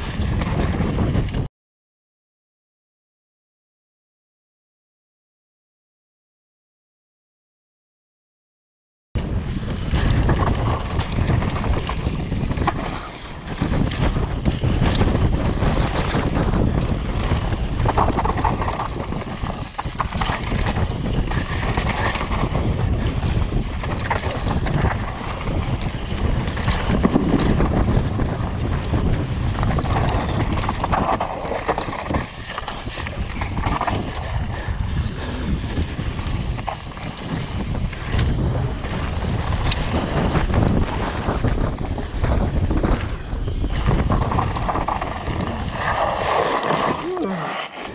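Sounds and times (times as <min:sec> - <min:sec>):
wind buffeting microphone: 0:00.0 - 0:01.5, 0:09.2 - 0:47.9
bike knocks and rattles: 0:09.2 - 0:46.0.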